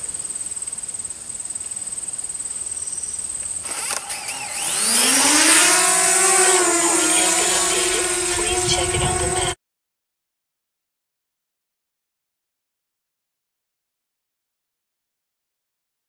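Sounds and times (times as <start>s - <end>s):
drone motors whining and buzzing: 3.4s - 9.6s.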